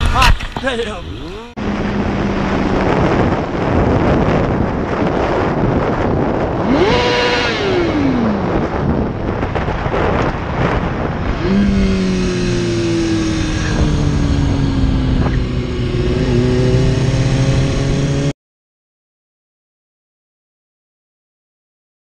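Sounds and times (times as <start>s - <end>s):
wind rush on microphone: 0.0s - 18.3s
motorcycle engine running: 1.2s - 18.3s.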